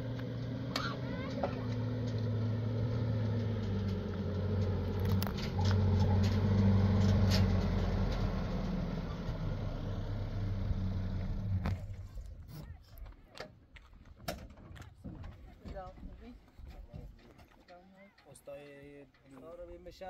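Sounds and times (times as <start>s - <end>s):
engine humming: 0.0s - 13.2s.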